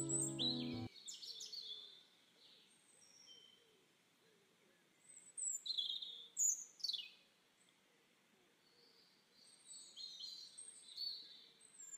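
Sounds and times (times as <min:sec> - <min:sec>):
birds chirping: 0:00.0 - 0:00.9.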